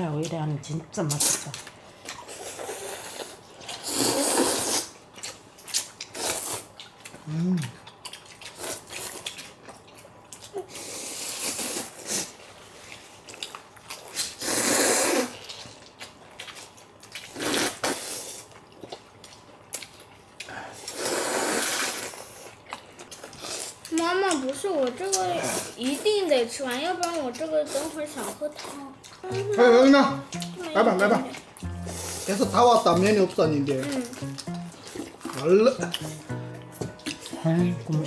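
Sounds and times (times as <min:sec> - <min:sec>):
noisy noodle slurping: 0:02.2 - 0:05.0, 0:14.2 - 0:15.6, 0:20.8 - 0:22.5.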